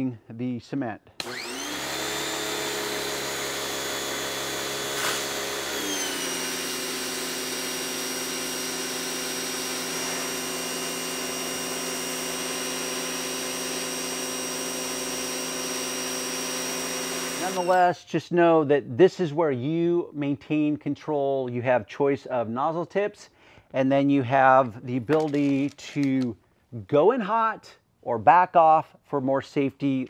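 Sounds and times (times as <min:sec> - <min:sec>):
pressure washer humming: 0:01.2 - 0:17.8.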